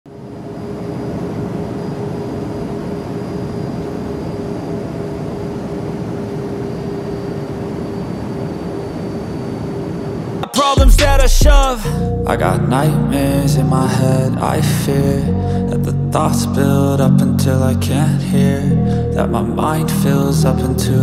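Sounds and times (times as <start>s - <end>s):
jet engine in flight: 0.1s - 10.6s.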